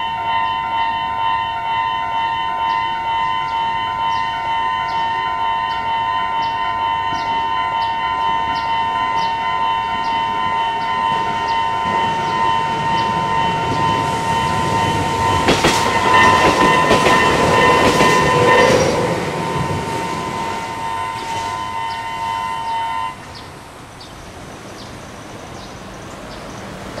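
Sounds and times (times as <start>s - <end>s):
level-crossing alarm bell ringing: 0.0s - 23.3s
electric train passing: 0.0s - 27.0s
train wheels clacking over rail joints: 11.1s - 21.6s.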